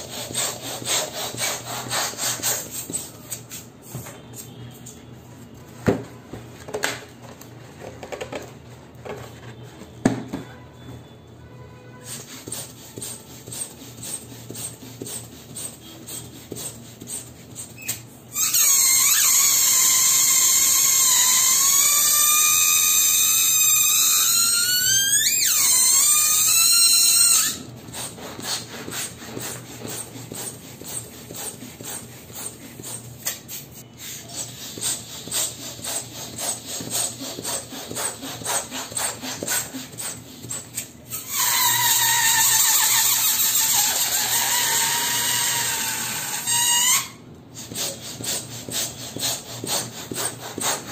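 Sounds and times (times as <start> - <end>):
balloon squealing: 17.1 - 28.7, 34.1 - 48.5
rubbery balloon crackling: 23.5 - 32.6.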